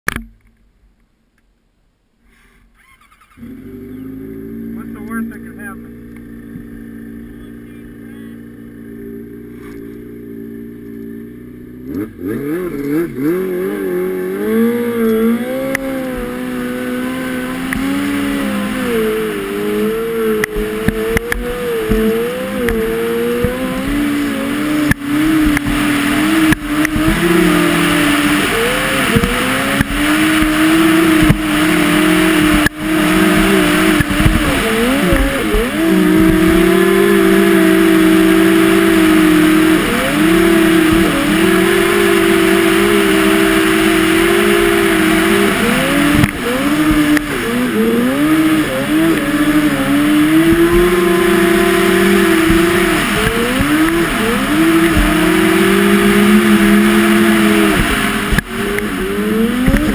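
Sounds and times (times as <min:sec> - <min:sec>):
snowmobile engine revving: 0:02.3 - 0:59.9.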